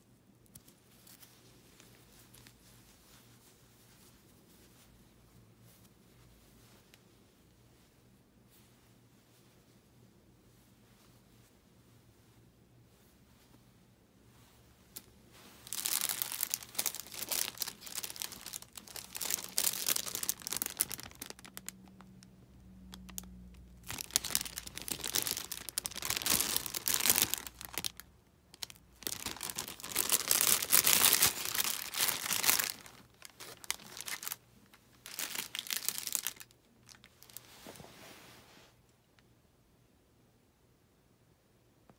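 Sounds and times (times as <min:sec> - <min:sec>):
plastic bag crinkling: 0:15.4 - 0:37.5.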